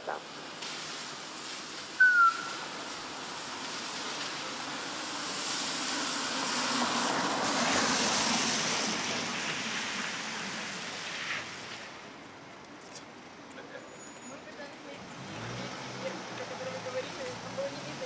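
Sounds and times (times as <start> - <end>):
vehicle passing by: 14.9 - 18.0.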